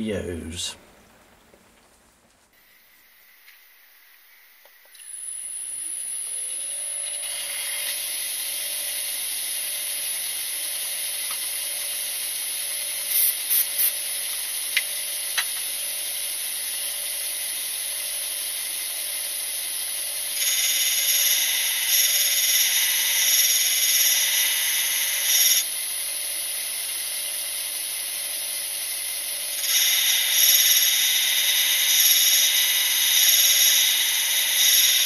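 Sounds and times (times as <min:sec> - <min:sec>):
grinding wheel grinding drill bit: 0:04.9 - 0:35.0
electric motor whining: 0:05.0 - 0:14.0, 0:20.3 - 0:25.7, 0:29.4 - 0:35.0.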